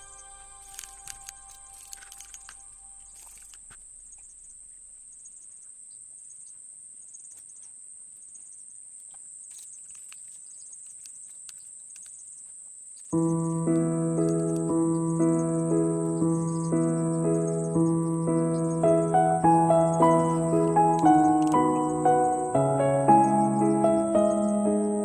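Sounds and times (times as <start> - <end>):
piano background music: 0.0 - 3.4, 13.2 - 25.0
steady high-pitched whine: 0.0 - 3.4.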